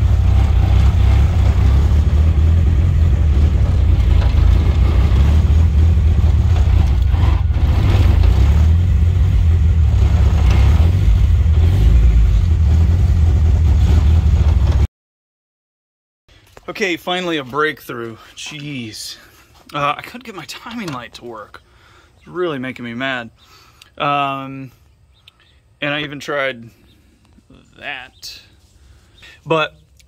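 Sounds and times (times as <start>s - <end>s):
car engine running: 0.0s - 14.9s.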